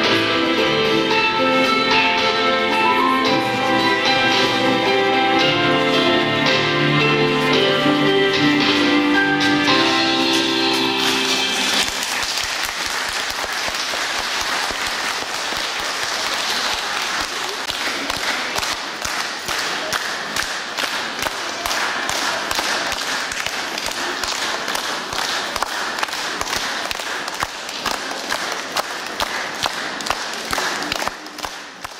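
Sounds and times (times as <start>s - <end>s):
music: 0.0s - 12.4s
audience applauding: 10.2s - 31.9s.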